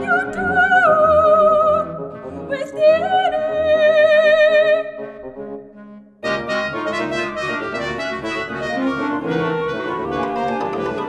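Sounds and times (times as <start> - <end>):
soprano singing with vibrato: 0.0 - 1.8, 2.5 - 4.9
low instrumental accompaniment: 5.5 - 11.0.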